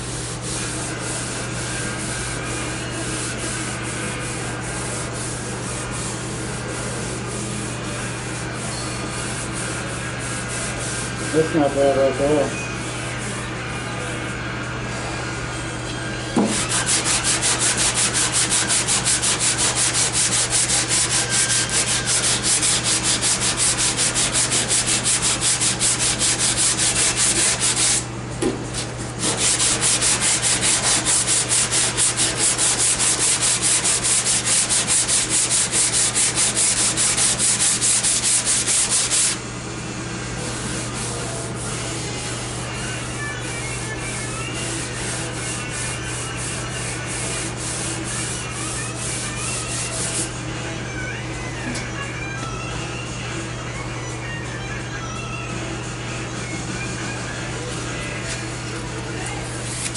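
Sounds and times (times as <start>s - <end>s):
sandpaper rubbing on filler: 0.0s - 7.4s, 8.1s - 12.5s, 16.4s - 39.4s, 40.4s - 50.4s, 59.4s - 59.9s.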